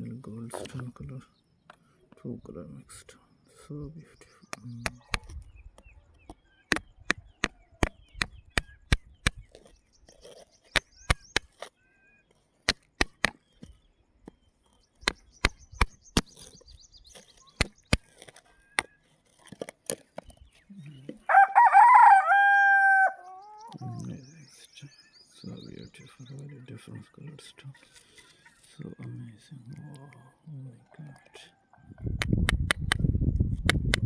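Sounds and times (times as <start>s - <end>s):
rooster crowing: 21.2s - 23.7s.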